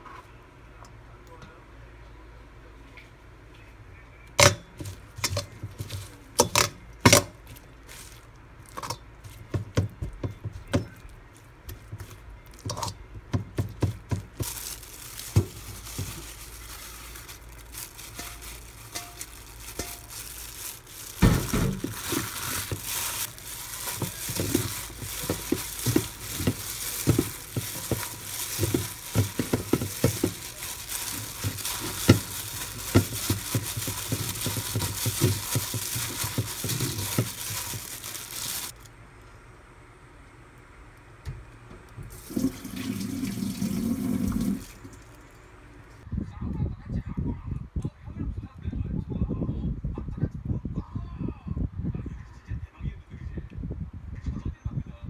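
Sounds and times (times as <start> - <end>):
hands rustling green onions: 4.8 - 38.9.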